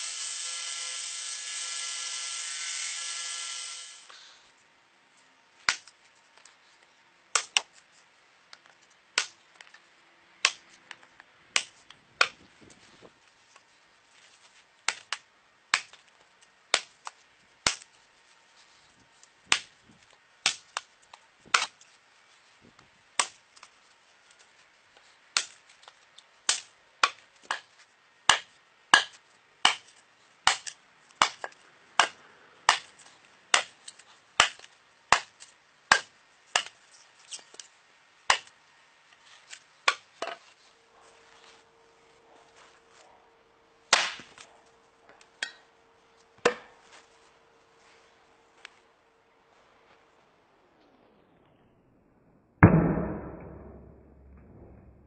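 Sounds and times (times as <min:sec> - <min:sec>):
belt grinder whine: 0:00.0 - 0:04.1
tomahawk chopping into wood: 0:28.3 - 0:29.9, 0:30.5 - 0:32.9, 0:33.5 - 0:33.8, 0:34.4 - 0:36.8, 0:39.9 - 0:40.4, 0:43.9 - 0:44.4, 0:46.4 - 0:46.8.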